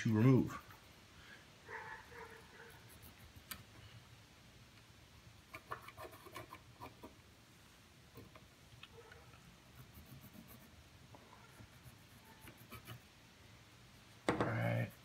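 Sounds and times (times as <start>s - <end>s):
pencil scratching on wood: 0.4s - 1.0s, 2.5s - 3.6s, 5.5s - 7.2s, 9.6s - 10.8s, 11.4s - 13.1s.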